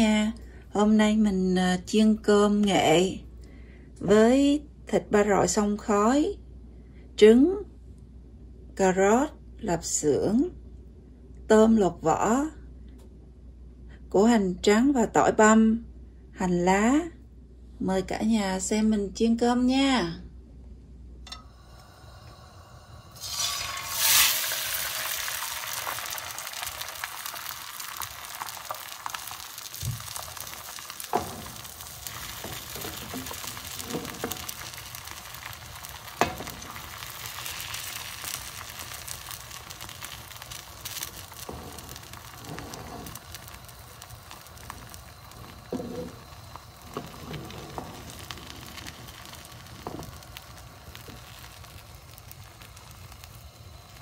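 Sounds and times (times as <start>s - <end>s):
eggs sizzling in oil: 21.3s - 54.0s.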